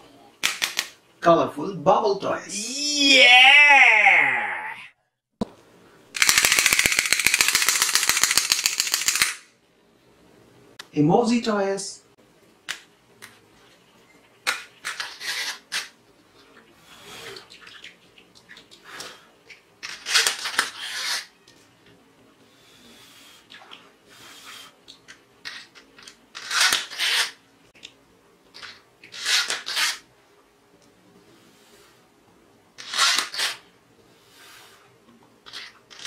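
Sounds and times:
short hissing bursts: 0:24.1 - 0:24.8.

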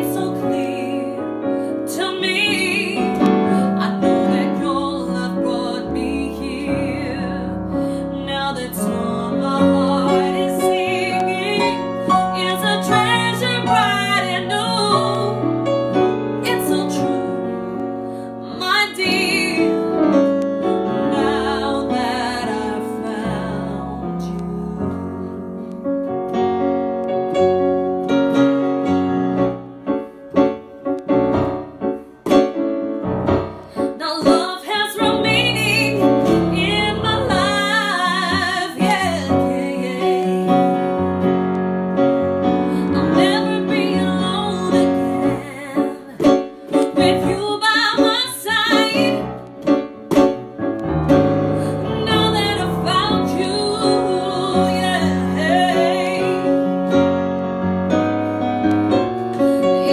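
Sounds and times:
woman singing: 0:00.0 - 0:15.5, 0:16.4 - 0:20.3, 0:20.9 - 0:25.6, 0:33.8 - 0:41.2, 0:42.7 - 0:49.3, 0:51.6 - 0:56.8, 0:59.4 - 0:59.9
digital piano playing: 0:00.0 - 0:59.9.

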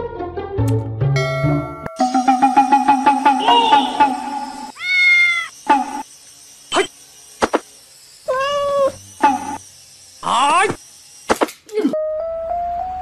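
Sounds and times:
cat meowing: 0:04.7 - 0:05.5, 0:08.3 - 0:09.0.

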